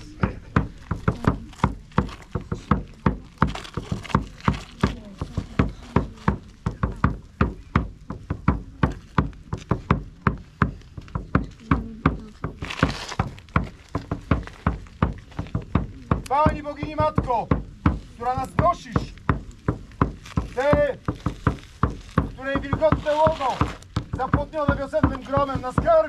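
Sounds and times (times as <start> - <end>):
drum beaten steadily: 0.0 - 26.0.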